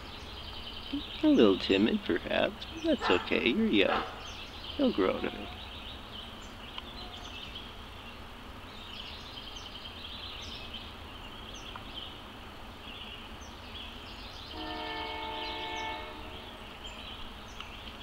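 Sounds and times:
high-pitched trilling and chirps: 4.7 - 5.6
train horn chord: 14.5 - 16.6.

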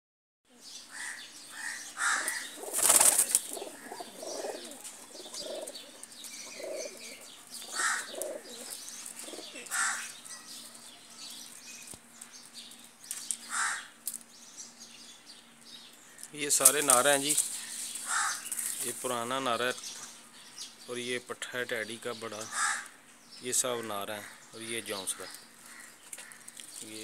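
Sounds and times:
pigeons cooing: 0.9 - 10.9
wings flapping: 2.1 - 6.1.

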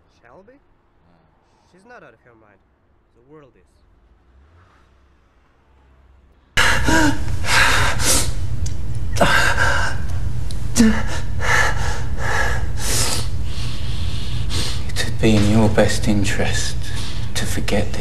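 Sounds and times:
steady low hum: 0.0 - 18.0
man breathing heavily: 6.6 - 17.6.

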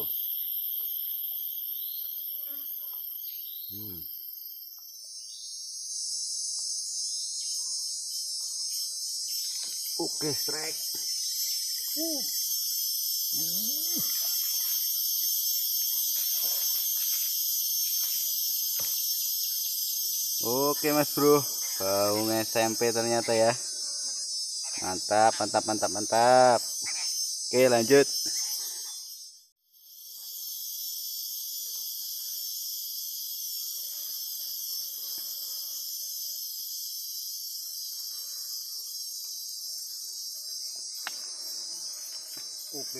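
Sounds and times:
insects droning: 0.0 - 42.9
person grunting: 3.8 - 4.0.

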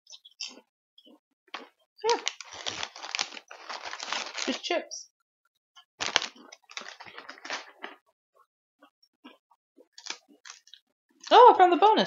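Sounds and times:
plastic packaging crinkling: 2.1 - 4.7, 6.0 - 8.0.

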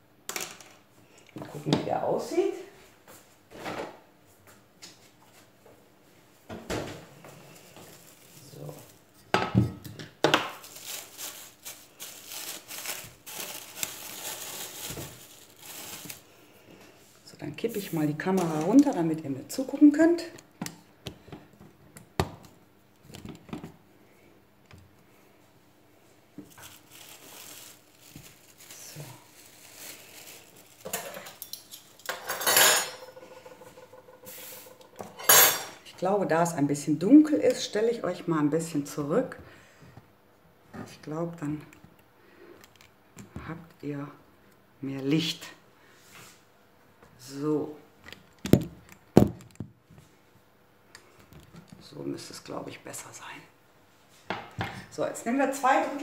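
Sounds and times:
cling film crinkling: 7.5 - 9.1, 10.5 - 16.3, 26.4 - 32.0.

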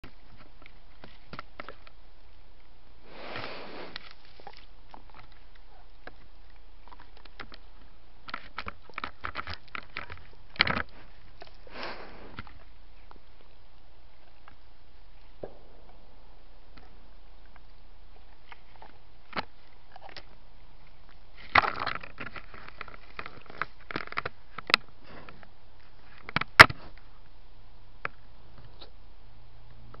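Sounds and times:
scraping and rustling: 3.1 - 13.5
clicks and rubbing on camera: 6.9 - 11.6.

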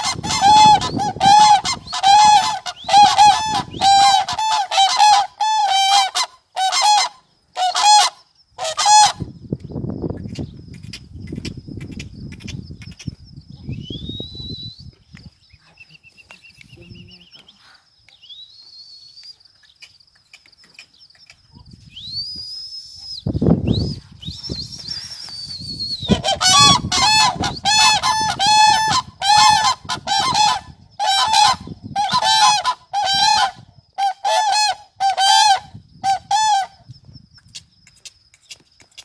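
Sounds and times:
cranes trumpeting: 0.0 - 9.3, 26.1 - 36.8
high whistling tones: 13.6 - 15.1, 18.1 - 19.4, 21.7 - 29.0.

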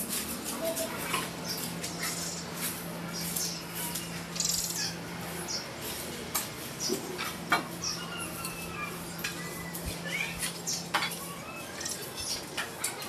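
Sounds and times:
broom sweeping concrete floor: 0.0 - 11.4
birds chirping: 0.0 - 13.0.

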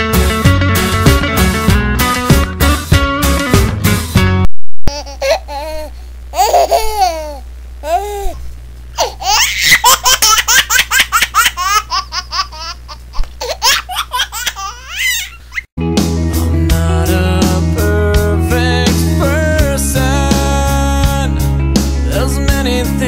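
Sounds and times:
music: 0.0 - 4.5, 15.8 - 23.0
steady low hum: 4.9 - 15.6.

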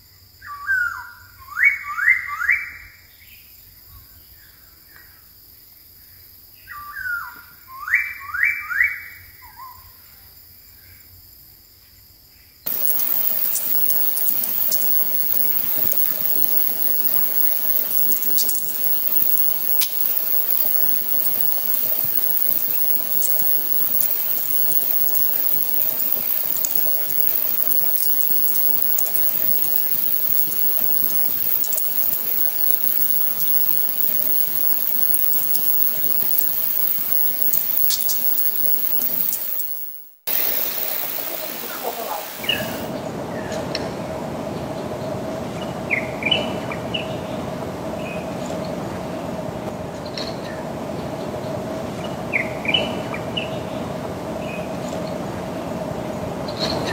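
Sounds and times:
running water: 12.7 - 42.9.

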